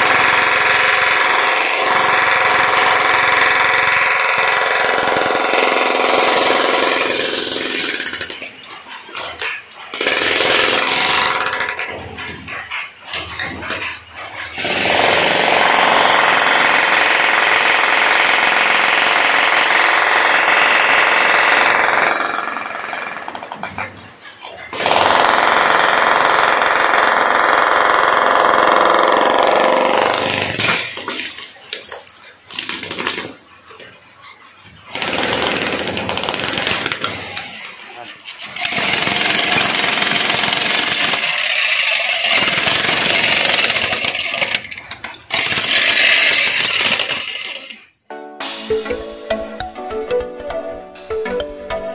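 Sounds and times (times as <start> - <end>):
demolition breaker hammering concrete: 35.0 - 37.4, 38.6 - 47.5.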